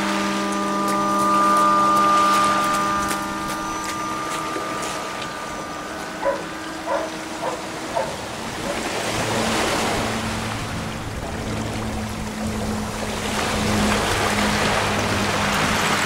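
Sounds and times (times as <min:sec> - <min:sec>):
short pitched blips: 0:00.0 - 0:11.0
electronic multi-tone drone: 0:00.0 - 0:16.0
low steady hum: 0:00.0 - 0:16.0
waves washing on shore: 0:00.0 - 0:16.0.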